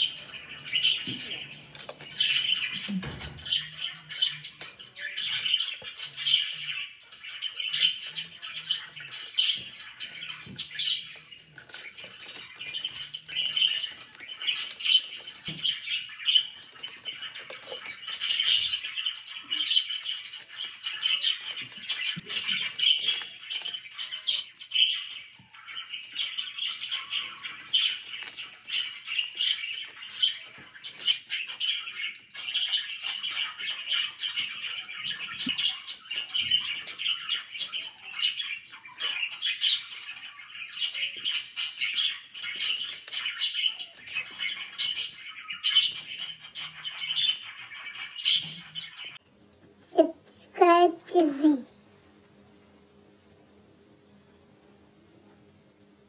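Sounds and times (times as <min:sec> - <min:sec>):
budgerigars chirping: 0:00.0 - 0:49.2.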